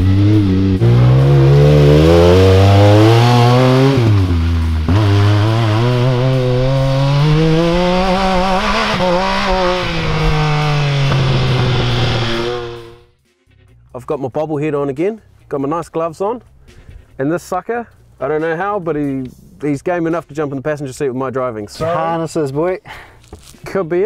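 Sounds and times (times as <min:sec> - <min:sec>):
engine revving hard: 0:00.0 - 0:13.1.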